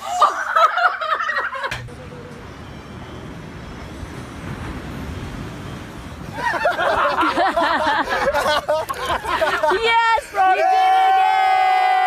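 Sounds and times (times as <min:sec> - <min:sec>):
people laughing and shrieking: 0:00.0 - 0:02.3, 0:06.3 - 0:12.0.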